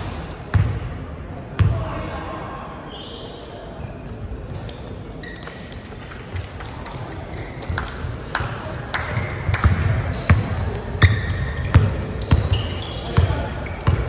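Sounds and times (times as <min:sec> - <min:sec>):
sneakers squeaking on floor: 0:02.9 - 0:08.2, 0:08.9 - 0:14.0.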